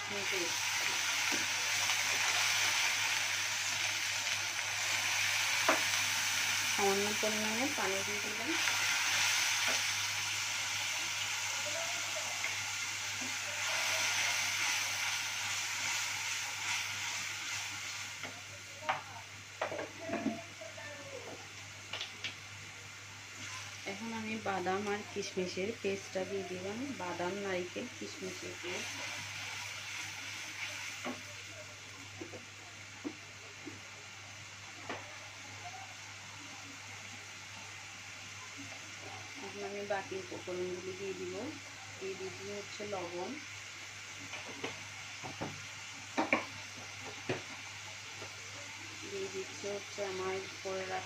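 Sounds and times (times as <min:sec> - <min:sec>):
paste sizzling in a pan: 0:00.0 - 0:51.0.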